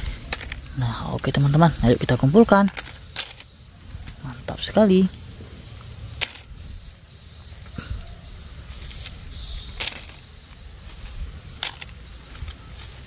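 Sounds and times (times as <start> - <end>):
plastic toy track pieces clacking: 0.1 - 0.7, 2.5 - 3.5, 6.2 - 6.5, 9.8 - 10.2, 11.6 - 11.9.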